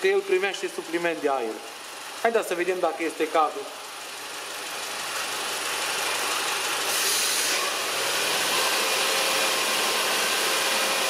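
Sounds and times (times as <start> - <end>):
car engine running unevenly: 0.5 - 2.3, 3.1 - 11.0
air hissing into engine: 6.7 - 7.8.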